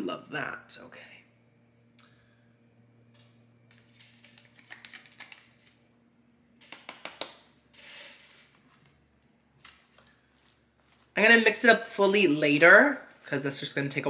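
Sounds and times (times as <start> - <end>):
plastic cup clicks and rustles: 3.7 - 5.6.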